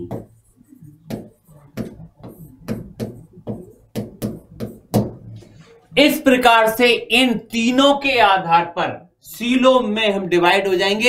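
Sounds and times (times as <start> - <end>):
marker pen on whiteboard: 0.0 - 8.4.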